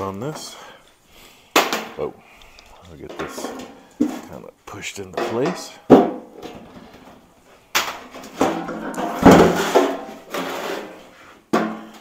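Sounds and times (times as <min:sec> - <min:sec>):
metal tank scraping against hoop: 0:08.6 - 0:11.3.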